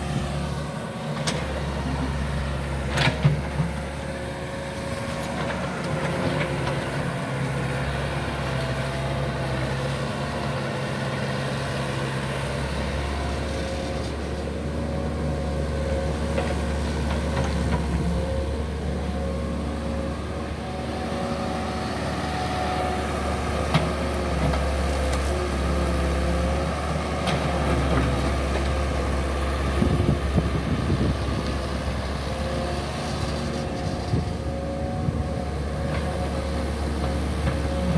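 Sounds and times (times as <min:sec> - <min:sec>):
excavator diesel engine: 0:00.0 - 0:37.9.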